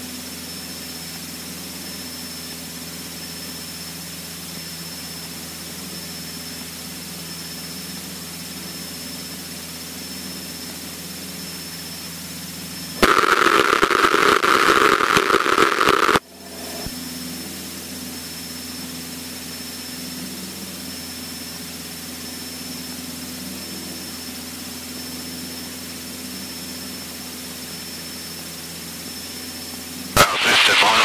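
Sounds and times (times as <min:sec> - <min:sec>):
aircraft engine running: 0:00.0 - 0:31.0
thin high whine: 0:12.6 - 0:19.0, 0:25.6 - 0:31.0.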